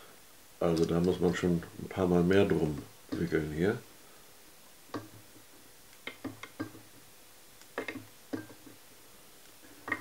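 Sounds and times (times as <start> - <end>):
light taps and clicks: 2.8 - 3.3.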